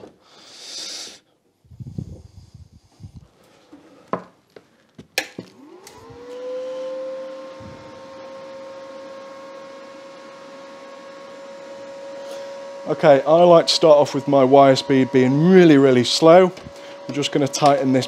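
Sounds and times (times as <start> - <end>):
welder switched on click: 5.2 - 6.4
cooling fan whine and hum: 5.5 - 18.0.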